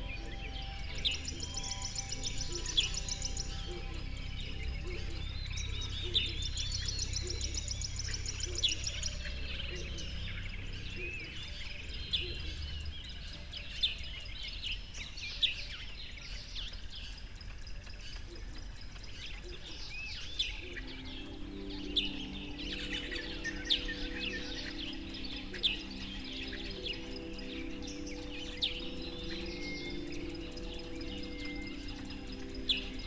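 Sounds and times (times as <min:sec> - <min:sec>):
low steady hum: 0:00.0 - 0:14.2
songbirds chirping and singing: 0:00.0 - 0:33.0.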